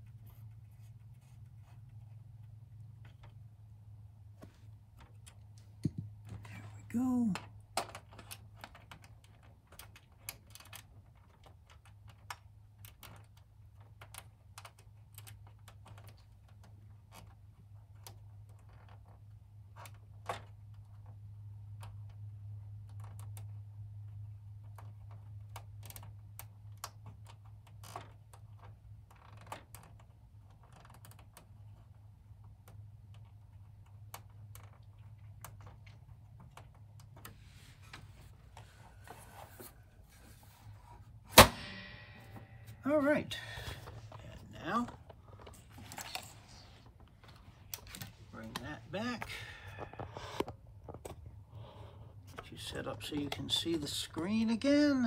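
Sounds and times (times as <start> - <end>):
low steady hum: 31.3 - 55.0.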